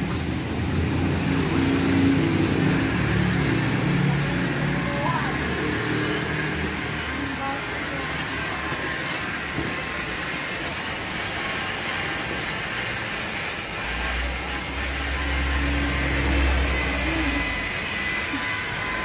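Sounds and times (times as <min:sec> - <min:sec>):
hissing rushing machine noise: 0:00.0 - 0:19.0
low hum: 0:13.7 - 0:19.0.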